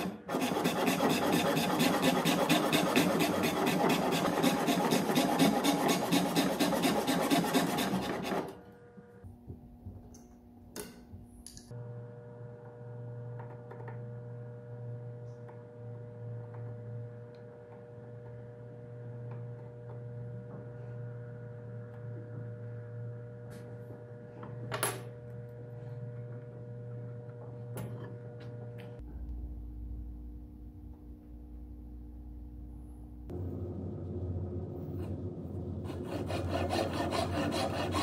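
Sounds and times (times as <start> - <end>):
wooden workpiece on workbench: 0.0 - 8.6, 35.8 - 38.0
steady low hum: 18.0 - 38.0.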